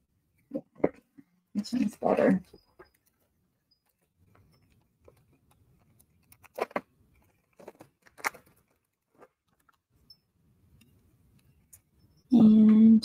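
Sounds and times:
plastic bag crinkling: 4.7s - 9.8s.

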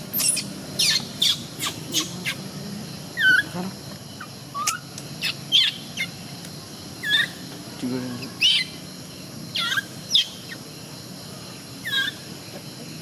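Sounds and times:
baby monkey squeaking: 0.0s - 2.4s, 3.1s - 3.6s, 4.2s - 6.2s, 7.0s - 7.4s, 8.3s - 8.8s, 9.5s - 10.6s, 11.8s - 12.2s.

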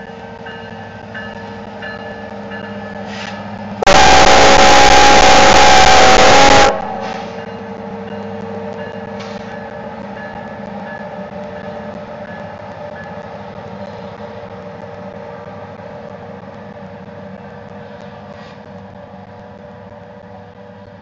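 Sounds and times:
train wheels rumbling on rail: 0.0s - 21.0s
diesel engine drone: 3.6s - 8.8s.

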